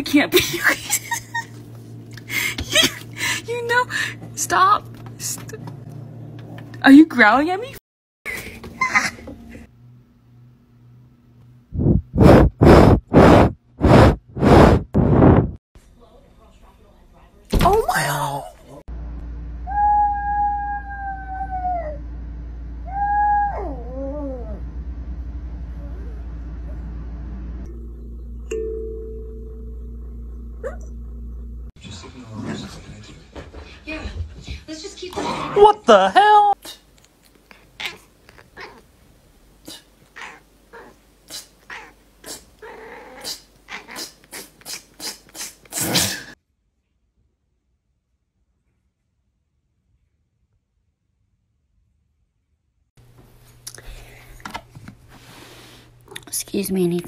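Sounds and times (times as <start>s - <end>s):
small dog howling: 19.6s - 22.1s, 22.8s - 24.6s.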